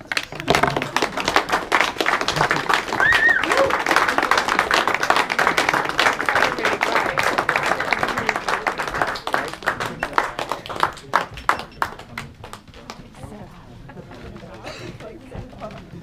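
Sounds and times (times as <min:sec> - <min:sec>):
audience applause: 0:00.0 - 0:13.0.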